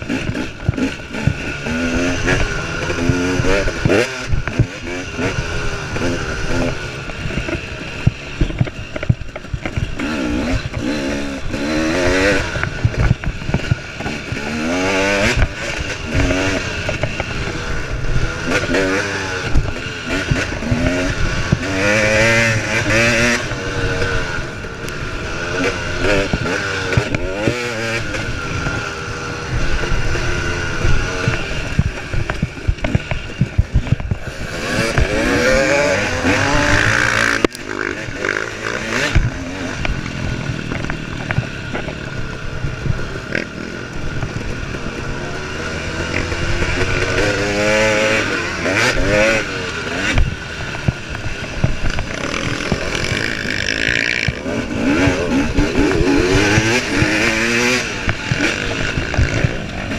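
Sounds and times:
dirt bike engine revving: 0.0s - 59.9s
bike knocks and rattles: 30.6s - 45.1s.

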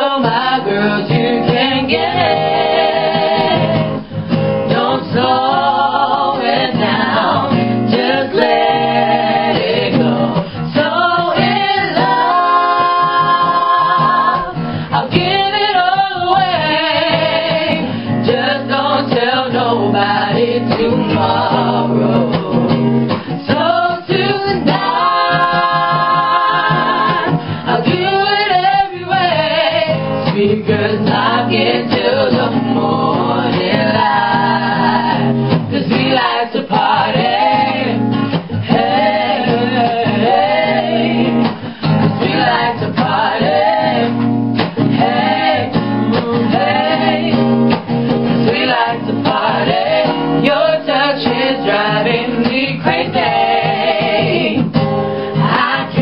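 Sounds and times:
women singing together: 0.0s - 56.0s.

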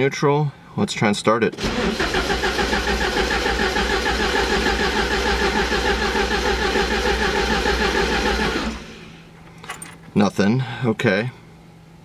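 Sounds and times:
engine cranking on starter: 1.6s - 9.2s.

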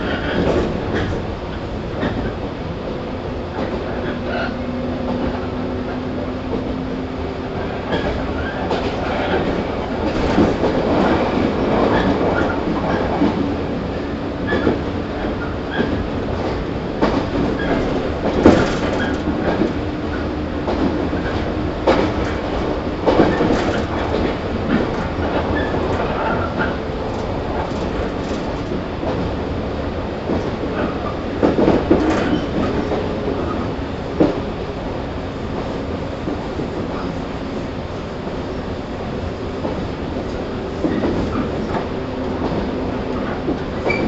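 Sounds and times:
train wheel and rail rumble: 0.0s - 44.0s
wheels clacking over rail joints: 3.5s - 29.6s.

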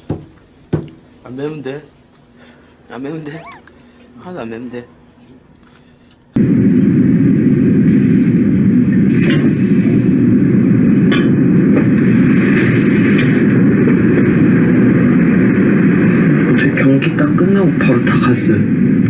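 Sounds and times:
loud low rumbling noise: 6.4s - 19.0s.

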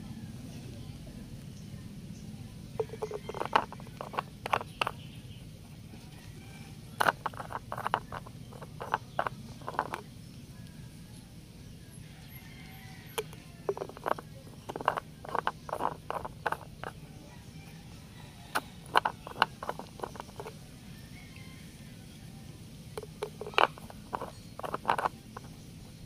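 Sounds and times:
low steady hum: 0.0s - 26.0s
plastic caps clicking and scraping: 2.8s - 6.2s, 6.9s - 10.1s, 13.1s - 17.0s, 18.5s - 20.6s, 23.0s - 25.7s.

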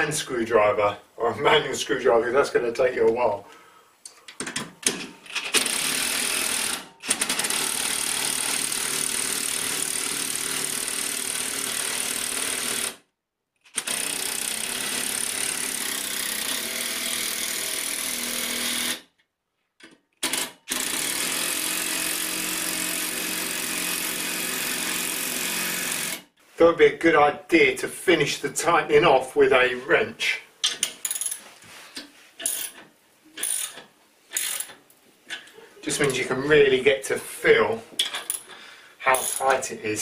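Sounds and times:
impact driver hammering bolts: 32.4s - 34.8s.

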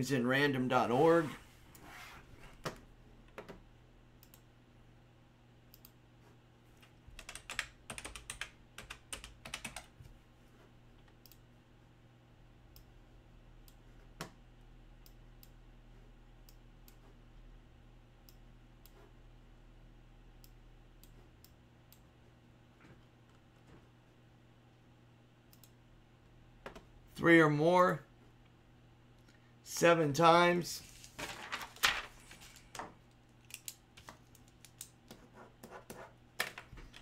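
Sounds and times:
faint steady hum: 0.0s - 37.0s
computer keyboard typing: 7.1s - 10.0s.

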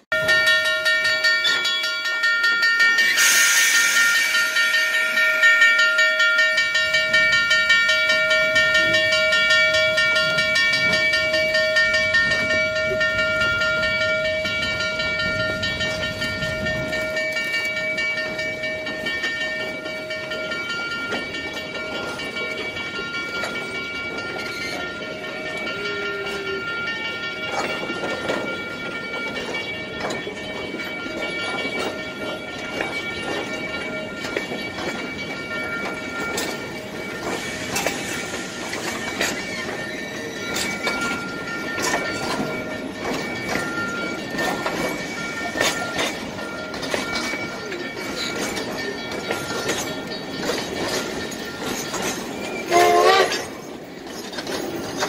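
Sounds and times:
high ringing tones: 0.0s - 55.0s
steam hiss: 3.0s - 6.1s, 36.5s - 41.2s.

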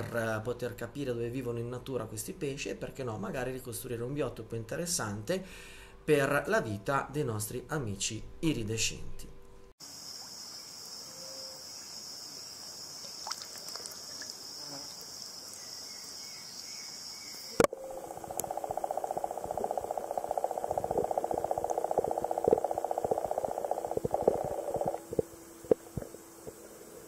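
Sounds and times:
insect chirps: 9.8s - 27.0s
insects chorus: 9.8s - 27.0s
low pulsing underwater hum: 17.6s - 27.0s.

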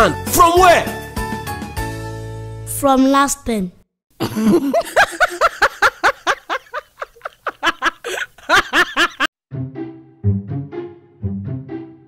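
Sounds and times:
high-pitched laughter: 4.2s - 9.3s.

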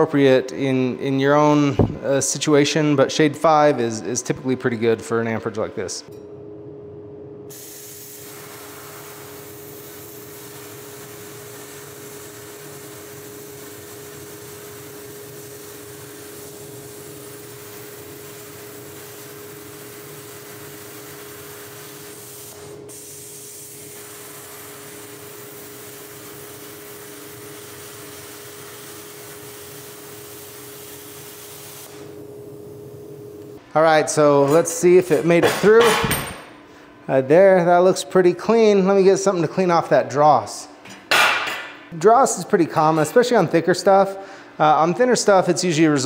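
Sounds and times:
plasma cutter hissing: 7.5s - 32.2s.

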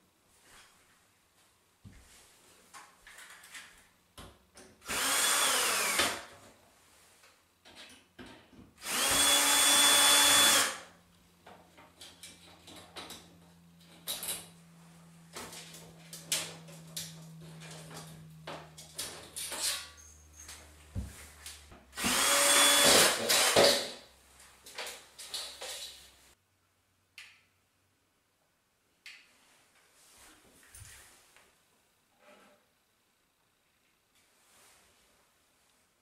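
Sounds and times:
cordless drill whining: 4.9s - 6.3s, 8.8s - 10.8s, 22.0s - 23.7s.

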